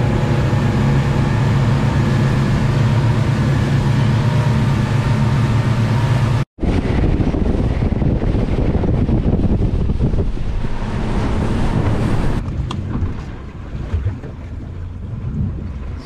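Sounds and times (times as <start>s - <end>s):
outboard motors droning: 0.0s - 16.0s
rushing water: 0.0s - 16.0s
water spraying off hull: 0.0s - 16.0s
wind buffeting microphone: 6.6s - 16.0s.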